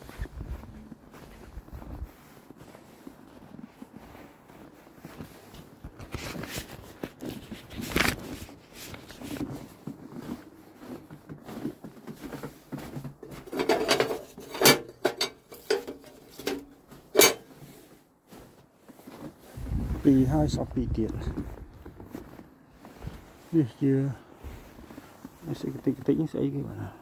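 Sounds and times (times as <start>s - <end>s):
paper rustling: 6.0s - 9.4s.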